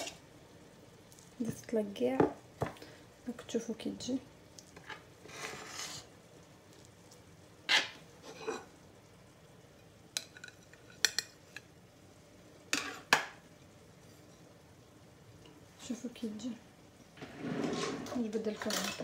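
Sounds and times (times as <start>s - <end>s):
metal spatula scraping baking dish: 5.2s - 6.1s, 7.7s - 8.7s, 17.2s - 19.0s.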